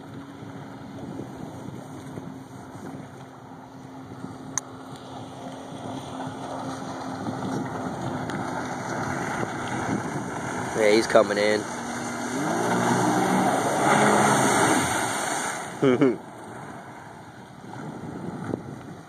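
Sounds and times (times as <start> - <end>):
wind buffeting microphone: 0.0 - 15.8, 16.5 - 19.0
jet ski engine at speed: 0.0 - 19.0.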